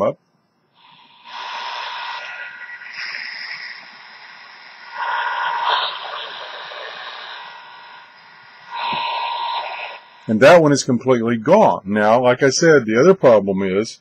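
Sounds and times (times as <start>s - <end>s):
radio static hiss with whine: 0.7s - 10.8s.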